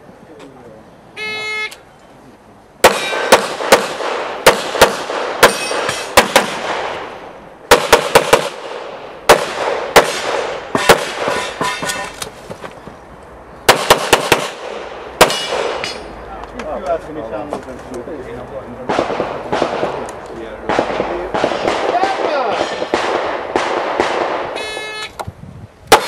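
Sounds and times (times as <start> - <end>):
handgun shots: 2.8 - 7.0, 13.7 - 16.0.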